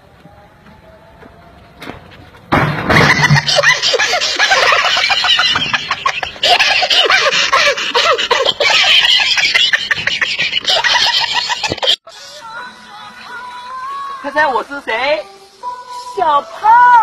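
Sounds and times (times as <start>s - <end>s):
people laughing loudly: 2.9s - 12.2s.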